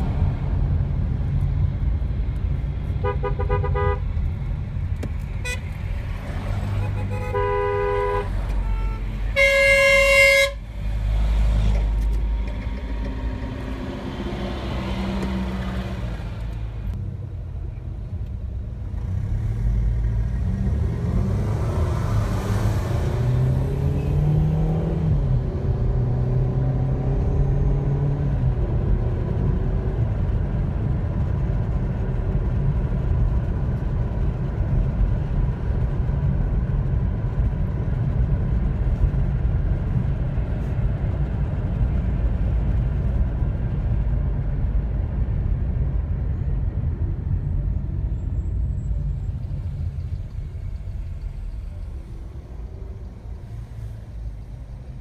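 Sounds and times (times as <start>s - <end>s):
car engine and road noise: 0.0s - 55.0s
car horn toot: 3.0s - 4.0s, 5.4s - 5.7s, 6.8s - 10.7s.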